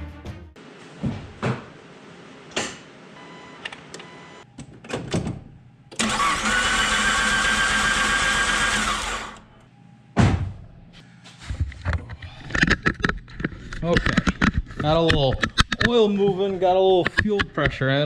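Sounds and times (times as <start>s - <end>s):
car starter motor cranking: 5.9s - 9.5s
thump: 10.2s - 10.6s.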